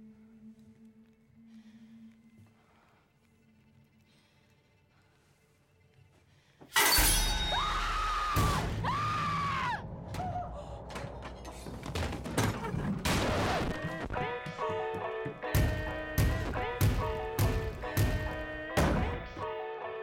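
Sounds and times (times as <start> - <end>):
horror film score: 0.0 - 19.6
woman screaming: 7.5 - 10.6.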